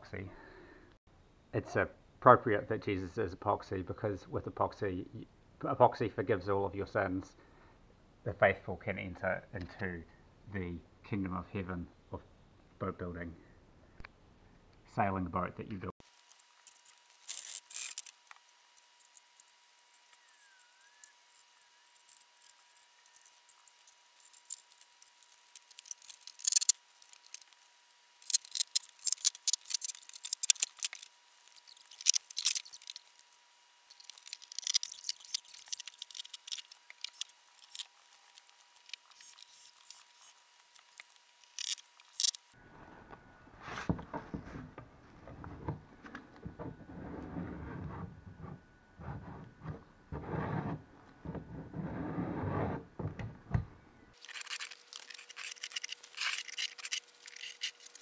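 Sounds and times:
rubbing and scraping on wood: 33.9s - 53.3s.

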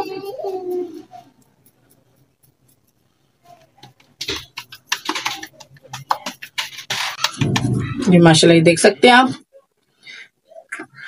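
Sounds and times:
wet hands patting mixture: 3.6s - 7.6s.

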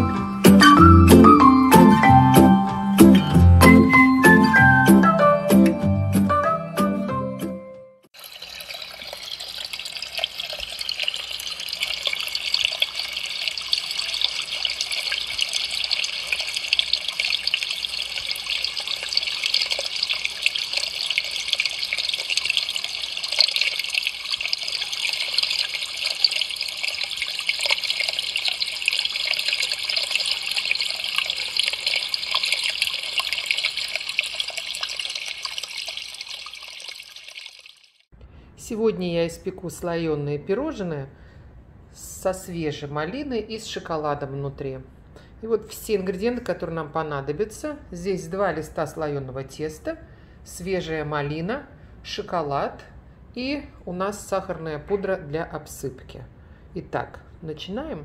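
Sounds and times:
fountain water splashing: 8.2s - 38.0s.

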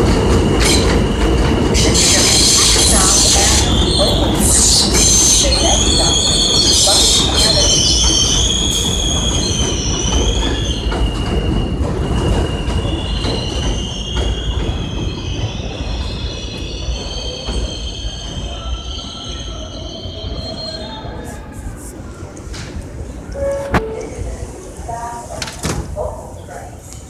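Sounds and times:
train cars rumbling and clattering: 0.0s - 27.0s
train wheels squealing: 0.4s - 21.6s.

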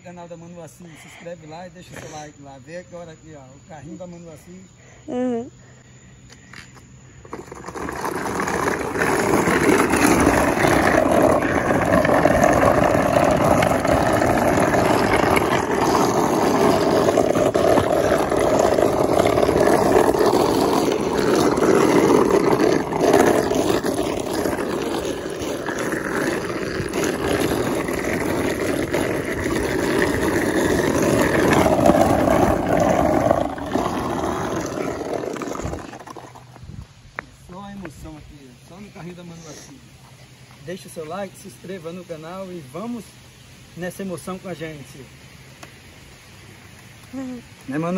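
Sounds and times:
cart wheels grinding on asphalt: 6.6s - 39.7s.

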